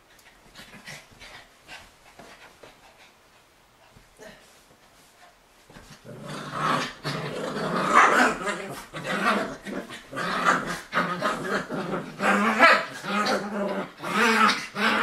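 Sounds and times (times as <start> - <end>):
dogs growling in play: 5.8 - 15.0.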